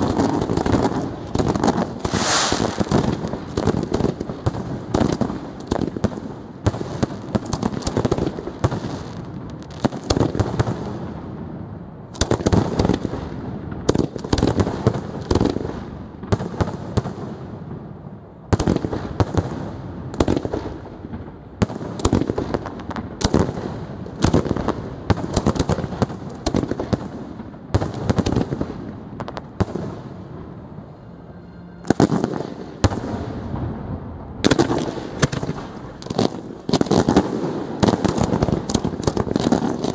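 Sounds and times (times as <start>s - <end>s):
fireworks shells bursting: 0.0s - 4.1s, 34.4s - 39.9s.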